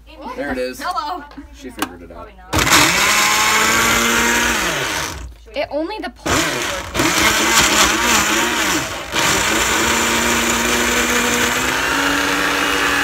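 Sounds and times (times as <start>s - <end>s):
blender churning frozen berries: 2.6s - 5.3s, 6.3s - 13.0s.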